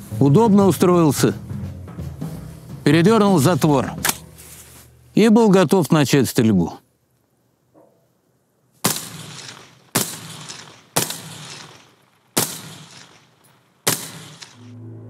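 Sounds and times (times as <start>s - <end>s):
gunshots: 8.8s - 14.7s.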